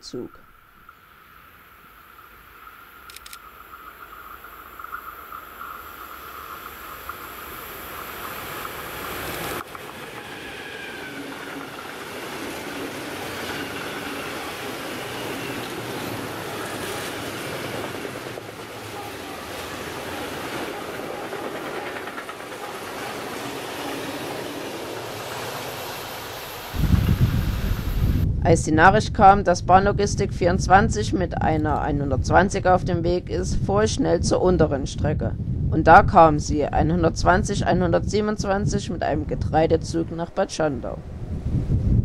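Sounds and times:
electric train whine: 0:00.5 - 0:28.4
wagon wheels rolling on rails: 0:06.6 - 0:27.1.

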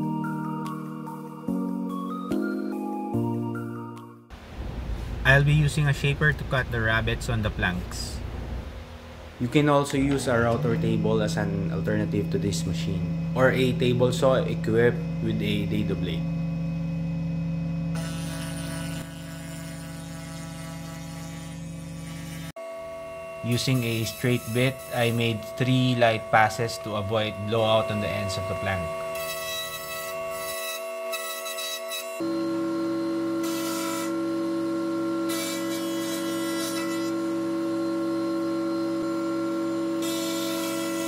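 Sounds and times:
wood shaper humming: 0:17.9 - 0:41.0.

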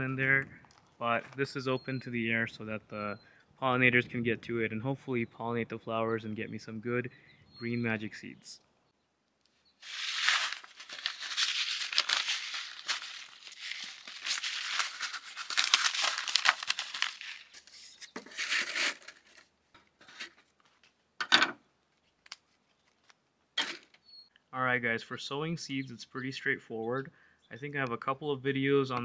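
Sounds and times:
paper packets rustling: 0:09.8 - 0:21.0.

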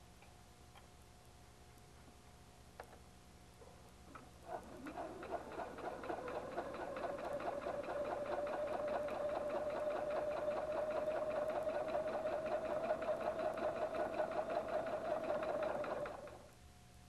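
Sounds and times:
sewing machine stitching: 0:04.5 - 0:16.4.

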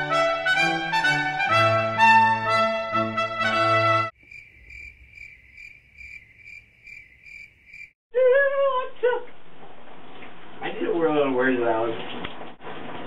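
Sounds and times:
brass fanfare: 0:00.0 - 0:04.2
cricket chirping: 0:04.2 - 0:08.0.

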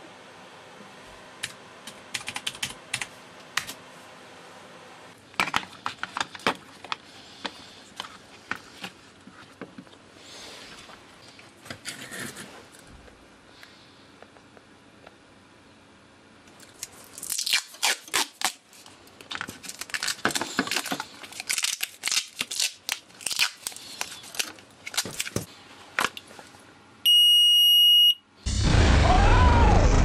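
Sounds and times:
scraping and crackling of handling: 0:10.6 - 0:12.9, 0:16.5 - 0:26.6.

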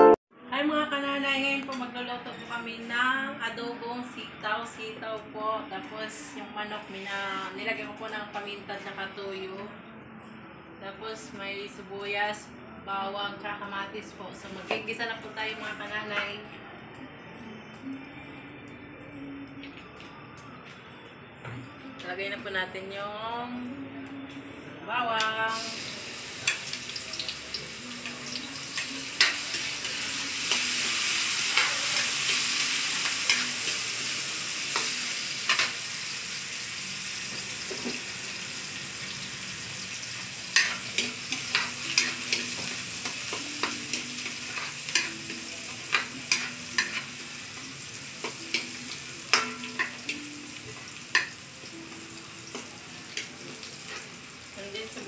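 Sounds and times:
garlic sizzling in hot oil: 0:25.5 - 0:55.0.

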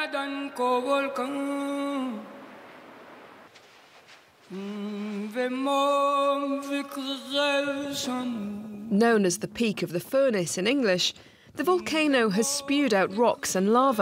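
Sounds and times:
person singing long notes: 0:04.5 - 0:08.9.

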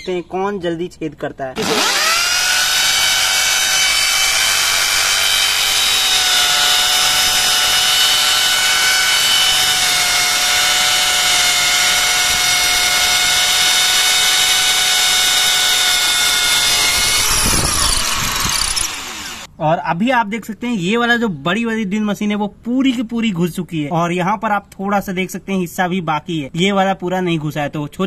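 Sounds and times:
drill bits grinding into brick: 0:01.6 - 0:19.5
electric drills whining: 0:01.6 - 0:19.5.

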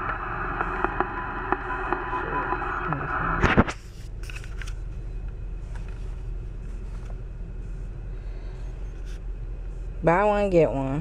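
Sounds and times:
muffled radio: 0:00.0 - 0:04.4.

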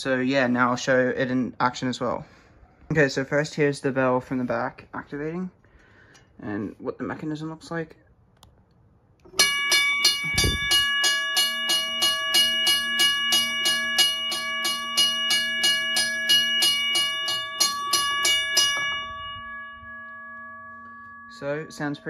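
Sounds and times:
railway crossing bell ringing: 0:09.3 - 0:22.0.

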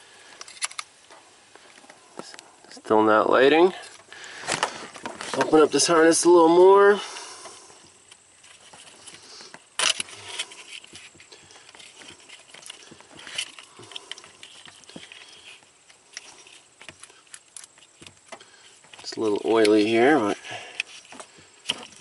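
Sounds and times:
plastic wiring loom crinkling: 0:08.4 - 0:22.0.

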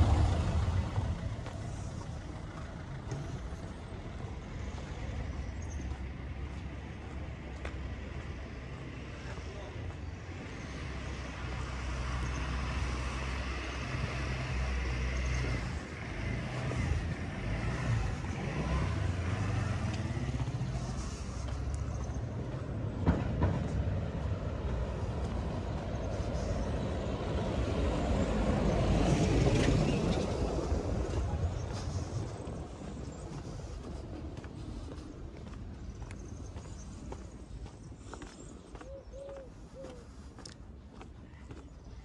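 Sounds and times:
vehicles passing: 0:00.0 - 0:42.0.

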